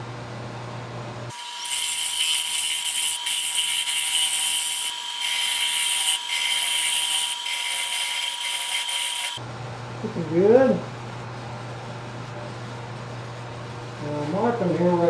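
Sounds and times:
gouge cutting wood on lathe: 0:01.4 - 0:09.4.

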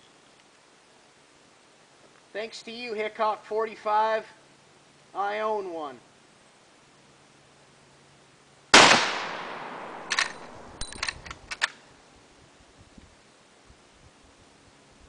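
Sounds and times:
rifle shot with echo: 0:08.7 - 0:10.8
rifle lever metallic clicks: 0:09.9 - 0:11.8.

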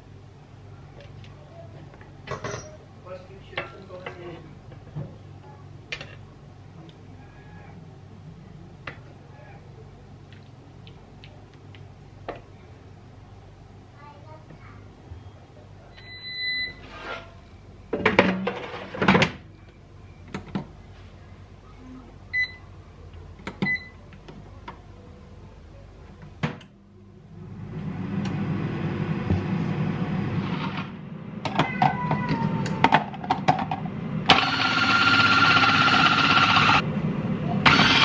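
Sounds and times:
air fryer whirring: 0:15.8 - 0:16.9, 0:26.4 - 0:38.0
food processor motor shredding: 0:34.3 - 0:36.8, 0:37.6 - 0:38.0.

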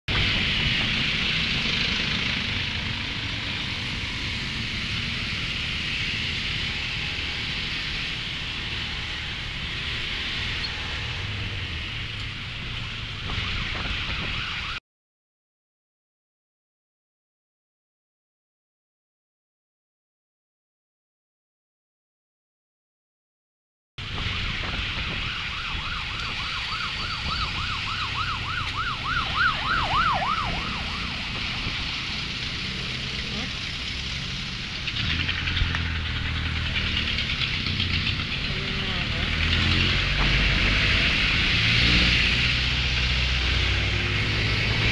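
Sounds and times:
emergency siren yelping: 0:00.1 - 0:14.8, 0:24.0 - 0:33.9
wind and road hiss: 0:00.1 - 0:14.8, 0:24.0 - 0:44.9
low engine rumble: 0:24.0 - 0:44.9.

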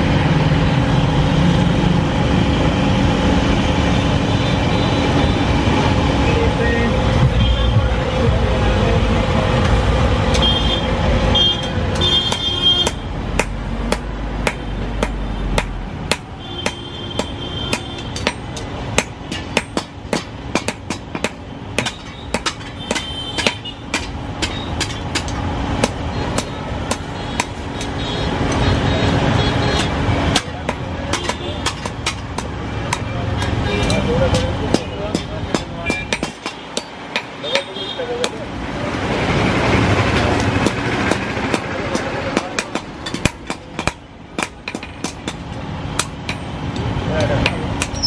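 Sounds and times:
hammer striking steel on anvil: 0:11.6 - 0:28.0, 0:29.8 - 0:38.5, 0:40.4 - 0:48.0.

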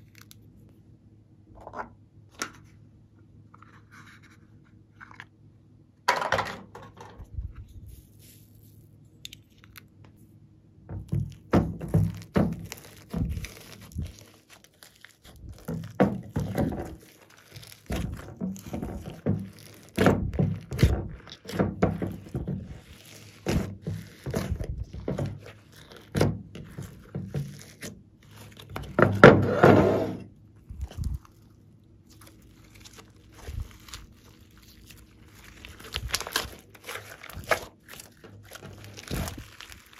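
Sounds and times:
slime squelching: 0:10.9 - 0:29.6, 0:30.2 - 0:39.9.

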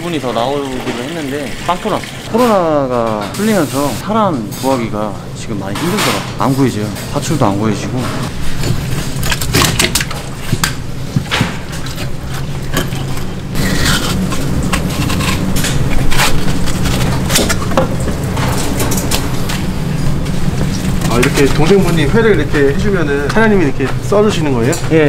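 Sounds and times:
steady low hum: 0:01.4 - 0:25.0
knife cutting and scraping fish: 0:08.0 - 0:19.7.

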